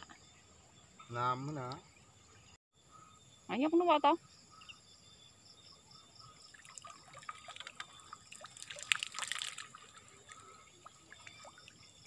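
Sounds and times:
water trickling and dripping: 6.2 - 12.0
small splashes: 6.4 - 12.0.

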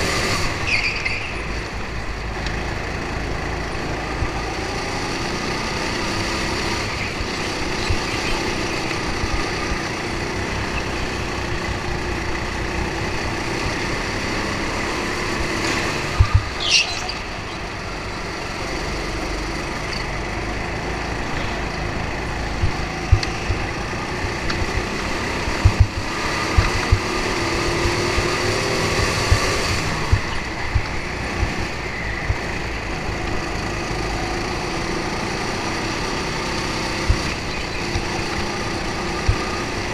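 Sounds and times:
go-kart engine running: 0.0 - 39.9
sharp knocks: 25.6 - 27.1.

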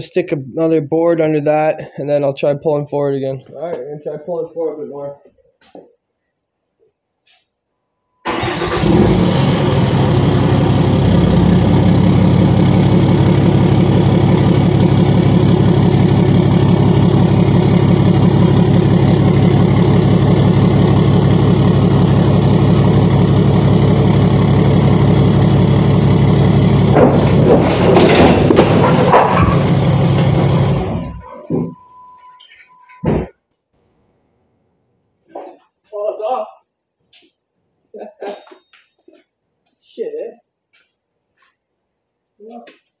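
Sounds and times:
diesel engine idling: 8.3 - 31.5.

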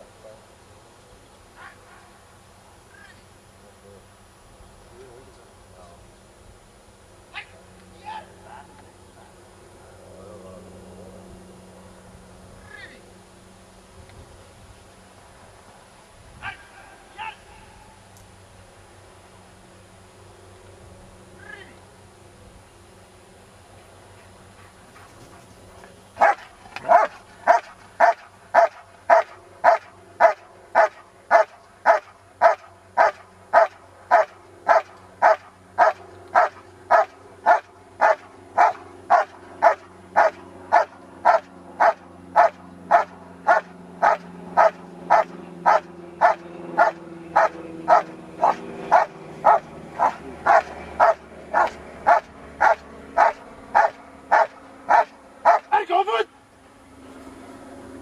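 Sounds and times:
dog barking rhythmically: 26.2 - 55.8.

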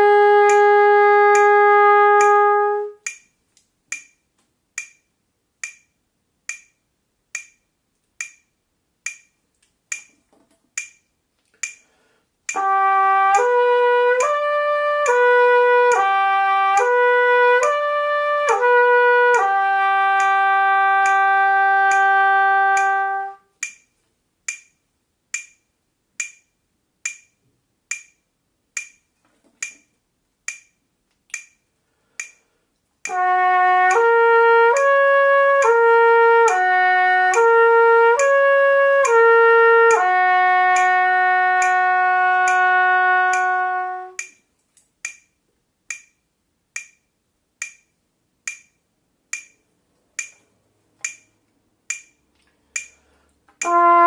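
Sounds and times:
trumpet playing slurred notes: 0.0 - 3.0, 12.5 - 23.5, 33.1 - 44.2, 53.6 - 54.0
metronome clicking: 0.0 - 54.0.

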